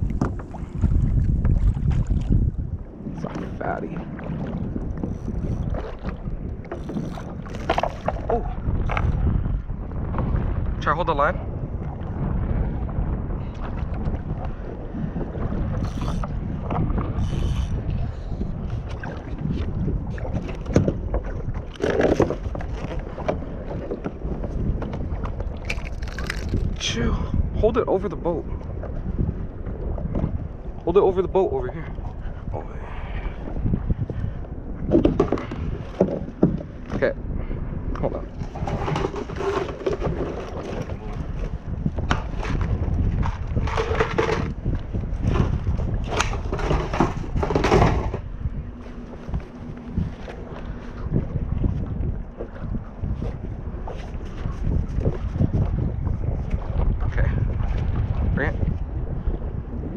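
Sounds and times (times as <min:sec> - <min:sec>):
paddle splashing through water: 0:00.0 - 0:09.2, 0:18.6 - 0:26.8, 0:38.3 - 0:59.5
wind rumbling on microphone: 0:00.0 - 0:59.9
fishing rod clicks and knocks: 0:04.9 - 0:09.1, 0:15.8 - 0:17.8, 0:24.9 - 0:26.8, 0:42.0 - 0:48.3.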